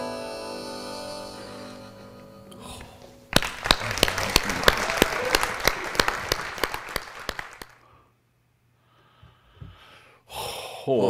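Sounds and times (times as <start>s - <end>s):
audience clapping: 3.3s - 7.9s.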